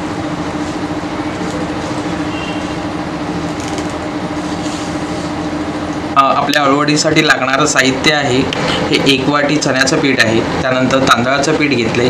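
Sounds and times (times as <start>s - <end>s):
machine hum: 0.0s - 12.0s
knife scraping leaf: 4.3s - 5.4s.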